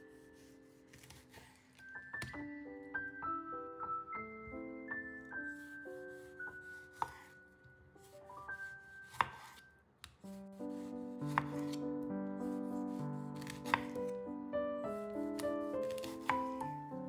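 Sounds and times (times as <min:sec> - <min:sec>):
soft piano music: 0:00.0 - 0:17.0
knife chopping on cutting board: 0:00.4 - 0:01.6, 0:06.1 - 0:07.3, 0:09.0 - 0:11.8, 0:12.8 - 0:14.0, 0:15.2 - 0:16.7.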